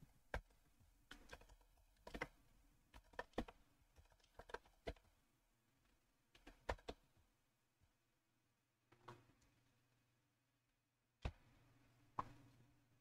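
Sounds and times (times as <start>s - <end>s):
faint keyboard typing: 0.3s - 5.2s.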